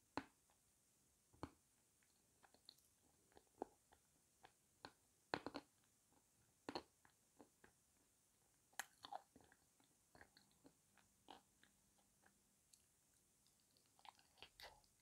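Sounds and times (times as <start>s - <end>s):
person chewing wet clay: 2.4s - 7.8s, 8.7s - 15.0s.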